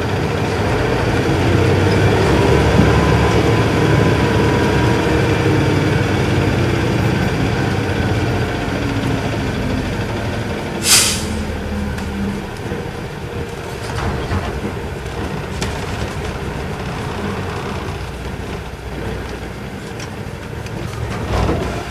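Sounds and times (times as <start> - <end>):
bus diesel engine low rumble: 0.0 - 21.9
air hiss: 10.8 - 11.5.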